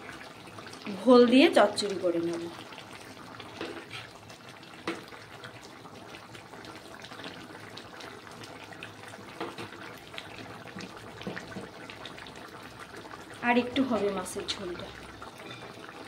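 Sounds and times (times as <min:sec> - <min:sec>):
curry bubbling in pan: 0:00.0 - 0:16.0.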